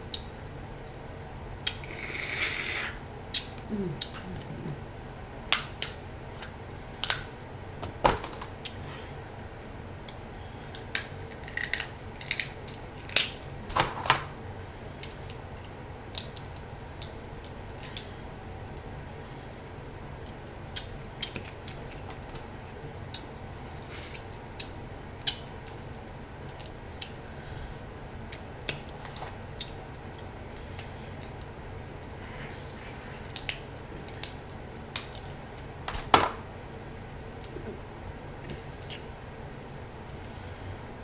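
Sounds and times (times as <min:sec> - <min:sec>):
steady low hum: 0:00.0 - 0:41.0
crab shells cracking: 0:10.7 - 0:13.5, 0:16.1 - 0:18.1, 0:24.0 - 0:27.2, 0:33.2 - 0:35.4.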